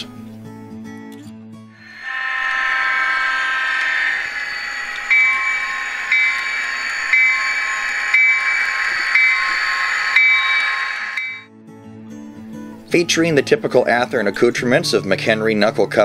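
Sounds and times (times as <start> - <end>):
crossing bell ringing: 1.8 - 11.5
steady rushing hiss: 1.9 - 11.4.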